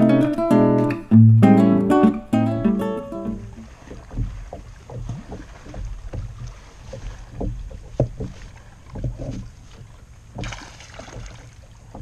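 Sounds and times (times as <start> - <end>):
knocks on kayak: 3.6 - 9.5, 10.3 - 12.0.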